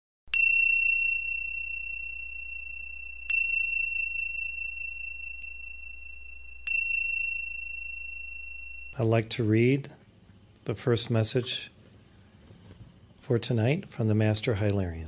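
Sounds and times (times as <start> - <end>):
high-pitched bell ringing: 0.3 - 9.9.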